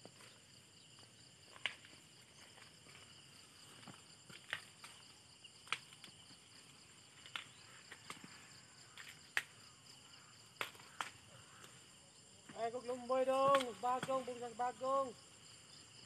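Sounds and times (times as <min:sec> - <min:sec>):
insects chirring: 0:00.0 - 0:16.0
sharp clicks and snaps: 0:13.5 - 0:13.8.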